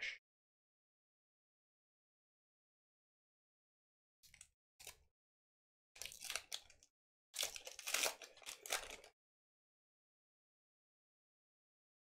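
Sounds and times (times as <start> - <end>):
foil wrapper crinkling and tearing: 6.0 - 9.1.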